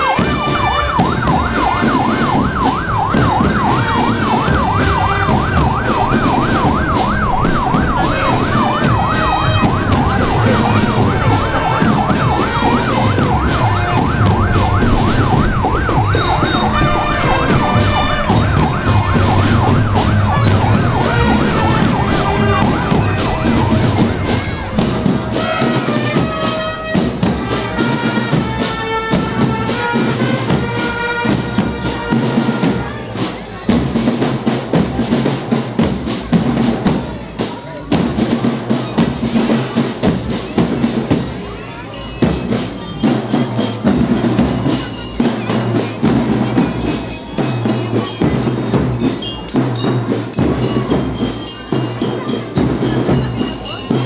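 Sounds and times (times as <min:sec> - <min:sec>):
drumming and music: 0:00.0 - 0:54.0
siren sweeping up and down: 0:00.1 - 0:27.2.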